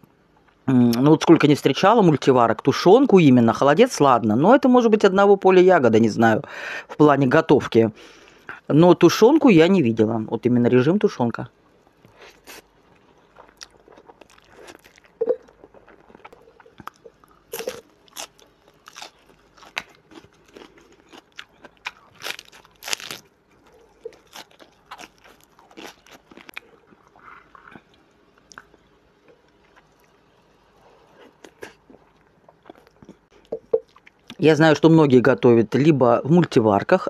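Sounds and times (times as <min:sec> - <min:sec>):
crunchy chewing: 0:11.9 - 0:34.4.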